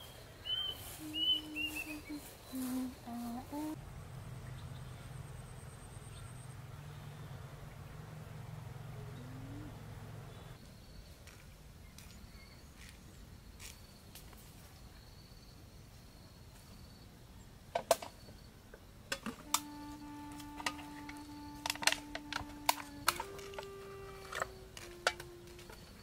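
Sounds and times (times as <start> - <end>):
plastic bottle crackling: 19.2 - 26.0
low held tone: 19.4 - 26.0.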